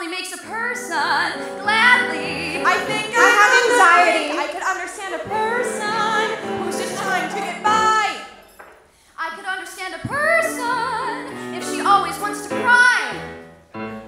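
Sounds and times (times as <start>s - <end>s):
piano accompaniment: 0.0s - 8.6s, 10.1s - 14.0s
women singing in close harmony: 0.4s - 8.2s.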